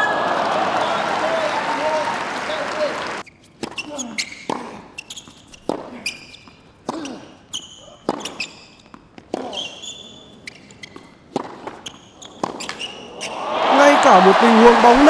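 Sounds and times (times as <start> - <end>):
tennis shoes squeaking: 3.2 - 13.4
racket hitting tennis ball: 5.6 - 6.0, 8.0 - 9.8, 10.9 - 13.4.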